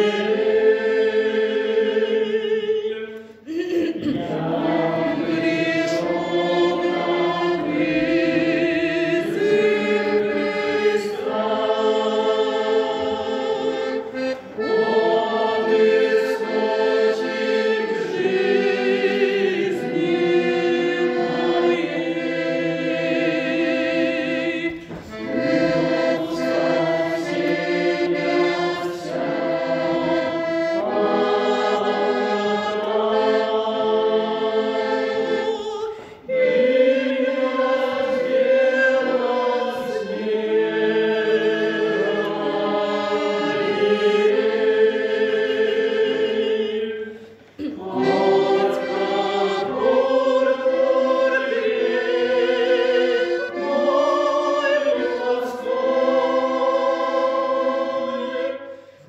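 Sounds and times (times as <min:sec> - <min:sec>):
accordion: 0:00.0 - 0:59.0
choir singing a hymn: 0:00.0 - 0:59.0.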